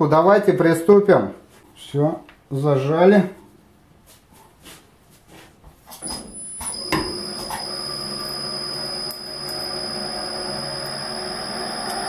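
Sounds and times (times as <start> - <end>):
machine motor whining: 6.2 - 12.0.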